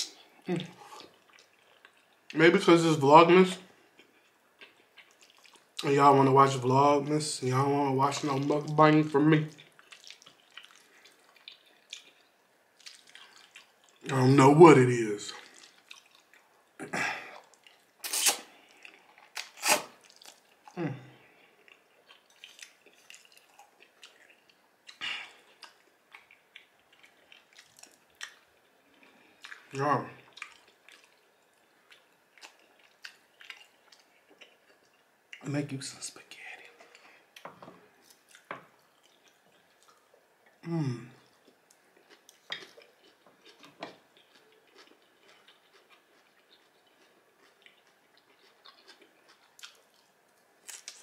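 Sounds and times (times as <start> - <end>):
man chewing food: 0.0 - 2.4, 3.8 - 5.9, 8.1 - 14.1, 15.3 - 35.4, 36.6 - 51.0
person humming: 0.5 - 0.8, 20.8 - 21.2, 40.6 - 41.2.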